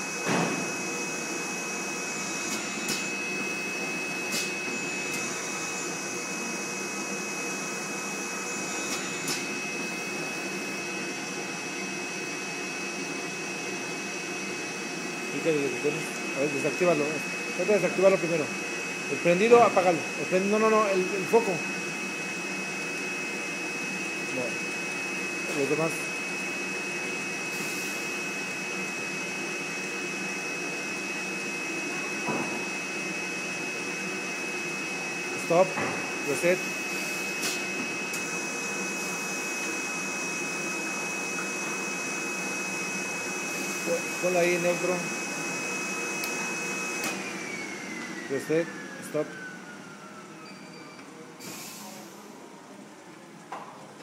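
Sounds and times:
printing machine running: 0.0s - 50.3s
high mechanical whine: 0.0s - 52.4s.

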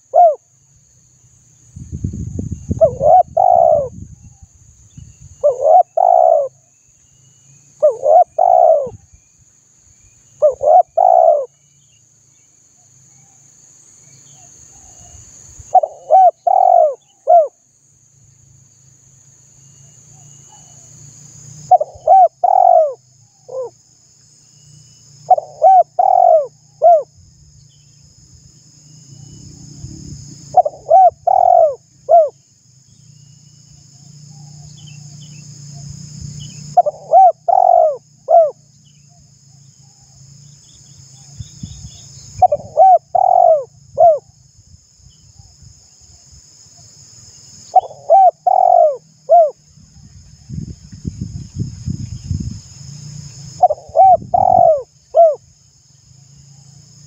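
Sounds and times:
dove cooing: 0.0s - 0.4s, 2.8s - 3.9s, 5.4s - 6.6s, 7.8s - 9.0s, 10.4s - 11.5s, 15.7s - 17.6s, 21.7s - 23.7s, 25.3s - 27.1s, 30.5s - 32.4s, 36.8s - 38.6s, 42.4s - 44.3s, 47.8s - 49.6s, 53.6s - 55.4s
high-pitched insect buzz: 0.0s - 57.0s.

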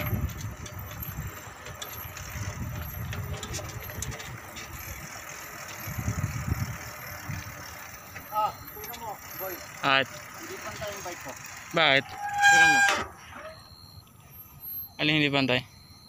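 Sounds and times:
bicycle clicks and rattles: 0.0s - 12.7s.

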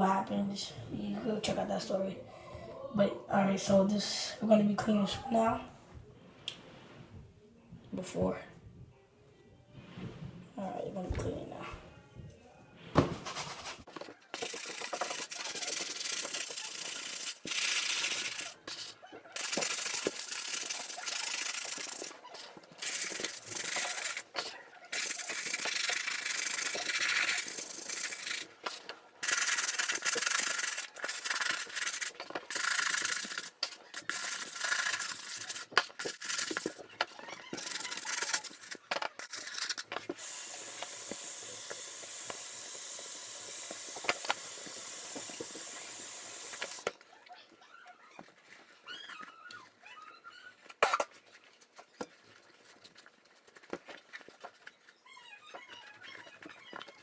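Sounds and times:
brush scrubbing shoe: 13.2s - 36.8s, 37.5s - 46.9s
tap water running over shoe: 40.2s - 46.9s.

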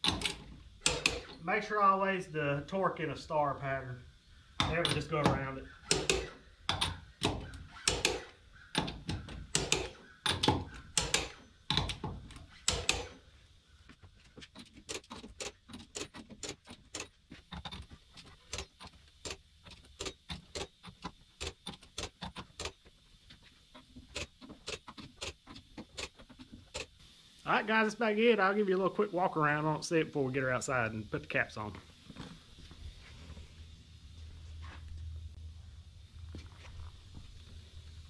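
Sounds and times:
torque wrench clicking: 4.6s - 13.2s, 18.5s - 22.8s, 24.1s - 27.0s.

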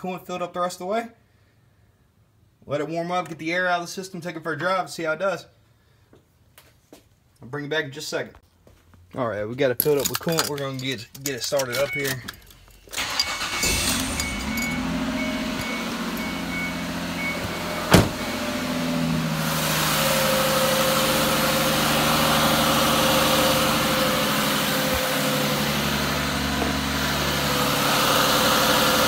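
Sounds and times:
car engine idling: 11.9s - 29.0s.

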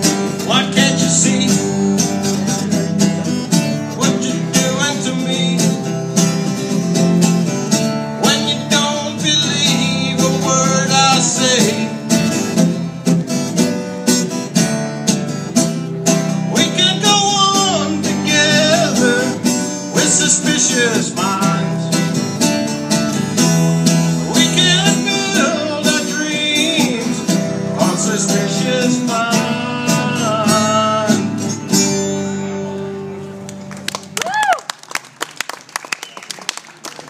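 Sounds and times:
acoustic guitar strumming: 0.0s - 34.1s
wordless singing: 16.5s - 22.0s, 24.2s - 31.3s.

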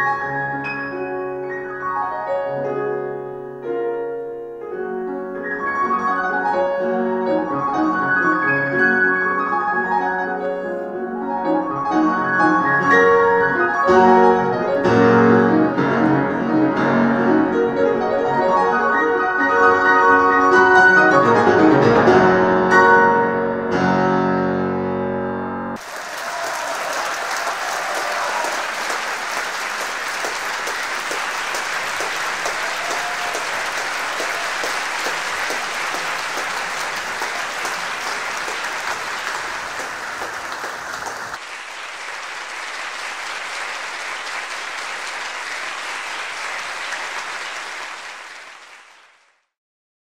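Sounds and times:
audience applauding: 25.8s - 49.5s.

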